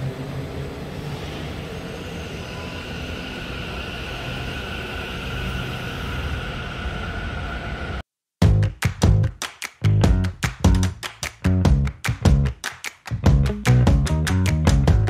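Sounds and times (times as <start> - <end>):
two-tone electric whine: 0.0 - 8.0.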